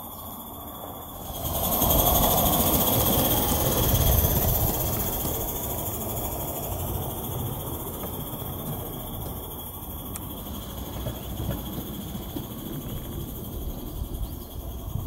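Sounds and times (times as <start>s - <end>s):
steam hissing: 0.0s - 15.0s
train wheels rumbling on track: 0.0s - 15.0s.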